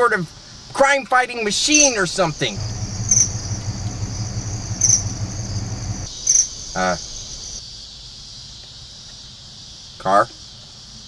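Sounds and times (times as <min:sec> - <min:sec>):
insects chirping: 0:01.6 - 0:08.0
low hum: 0:02.4 - 0:06.1.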